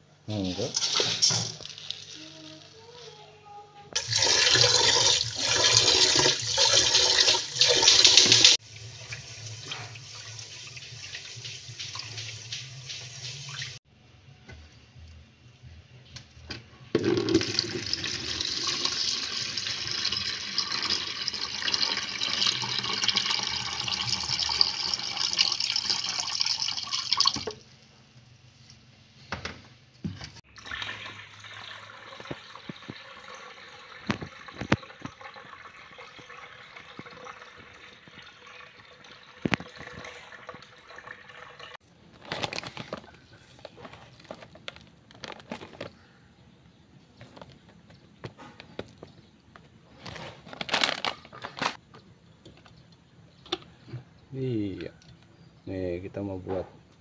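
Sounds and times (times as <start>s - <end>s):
water pouring into plastic bucket: 4.0s - 9.9s, 17.0s - 27.5s, 30.5s - 41.8s
tap water running into metal pot: 4.0s - 13.8s, 17.0s - 27.6s, 30.5s - 41.8s.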